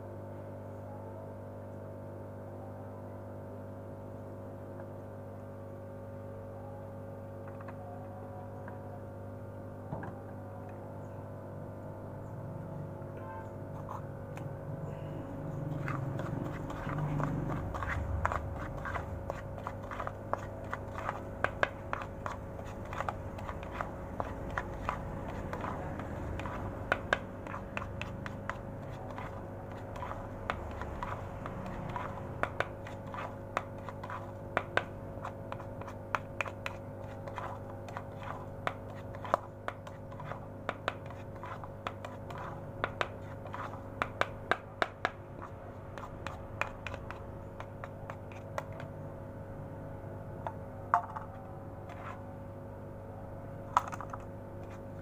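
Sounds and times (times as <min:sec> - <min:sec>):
spoon stirring pellets in plastic bowl: 0:15.6 - 0:48.8, 0:51.0 - 0:52.2.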